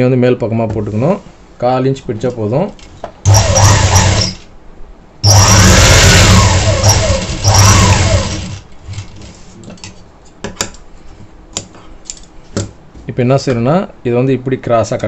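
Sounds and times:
sewing machine stitching: 3.2 - 4.5, 5.2 - 8.6.

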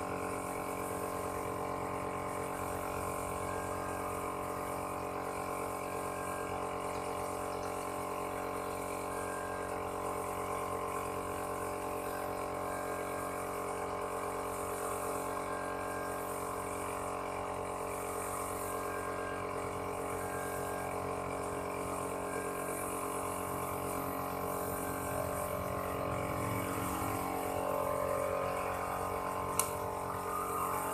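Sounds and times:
motor humming: 0.0 - 30.9
click: 29.5 - 29.8.

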